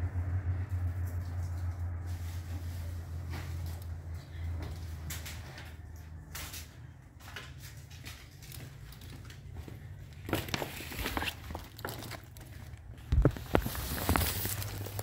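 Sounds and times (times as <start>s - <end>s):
footsteps: 0.9s - 15.0s
cloth rustling: 10.2s - 15.0s.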